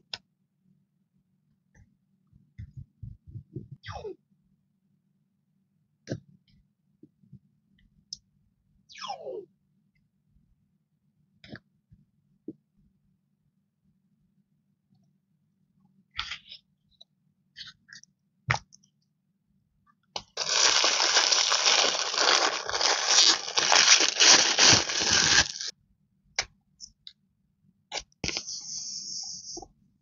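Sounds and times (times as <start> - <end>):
tape peeling off roll: 20.4 - 25.7.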